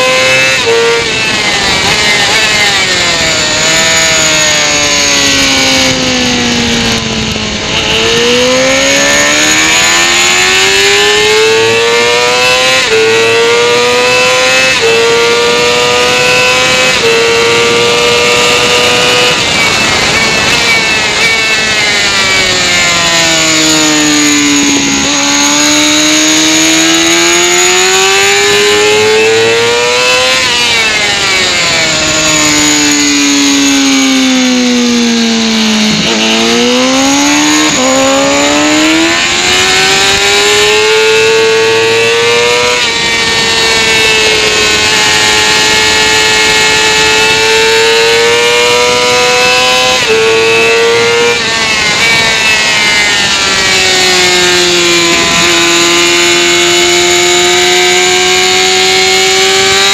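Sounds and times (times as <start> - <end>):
motorcycle engine shifting gears: 0.0 - 59.9
wind rush on microphone: 16.5 - 27.7.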